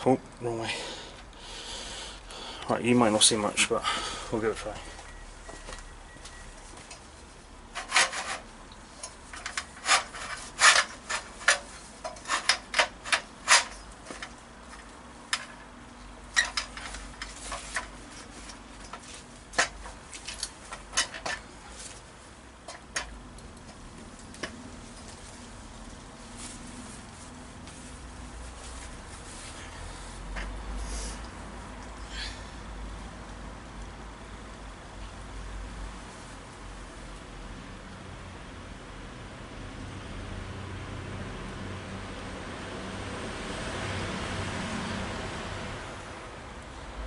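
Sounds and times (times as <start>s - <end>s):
sharp scrapes and clicks: 7.7s - 15.6s.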